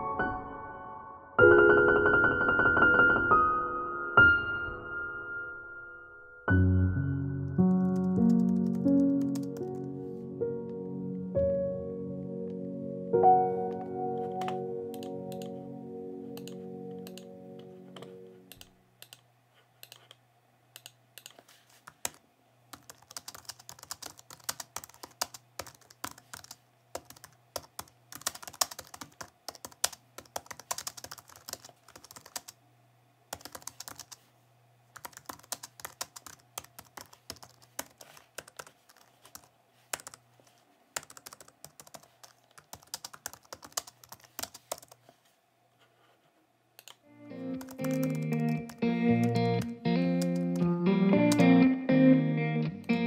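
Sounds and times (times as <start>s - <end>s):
keyboard and mouse clicking: 7.6s - 9.9s, 14.3s - 15.6s, 16.4s - 17.3s, 17.9s - 20.2s, 20.8s - 32.6s, 33.3s - 34.2s, 35.0s - 40.2s, 41.0s - 45.0s, 46.8s - 50.7s.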